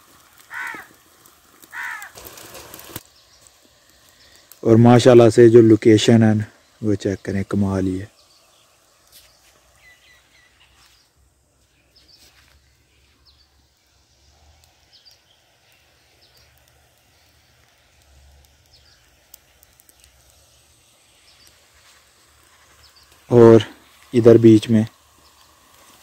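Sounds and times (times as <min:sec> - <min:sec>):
small clicks: 0:14.6 - 0:20.5.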